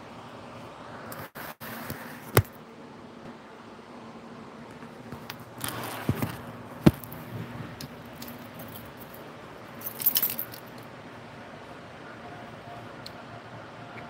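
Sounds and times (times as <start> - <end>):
steady low hum: 0.0 - 14.0
phone handling rustle: 4.8 - 8.9.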